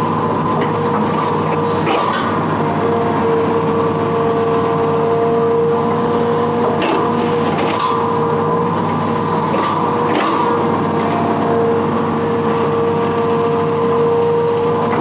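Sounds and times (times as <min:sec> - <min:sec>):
excavator diesel engine whining: 0:00.0 - 0:15.0.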